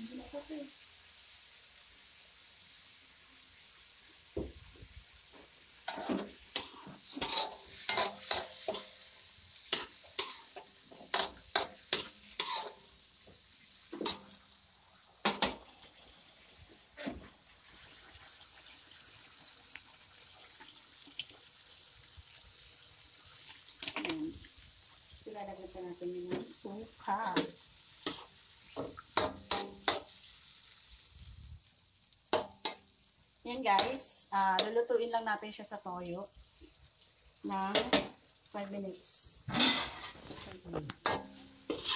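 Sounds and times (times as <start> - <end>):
faint sizzle from pan: 0.0 - 41.9
spatula scraping metal wok: 5.8 - 12.9, 26.5 - 30.3, 39.5 - 41.9.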